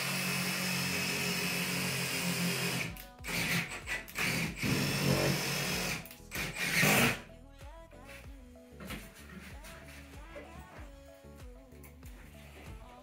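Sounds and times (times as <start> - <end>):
cordless drill running: 0.0 - 7.2.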